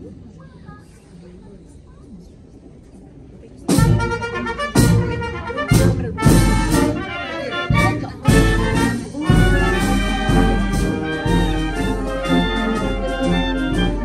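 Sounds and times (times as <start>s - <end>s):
trumpets and trombones: 3.7s - 14.0s.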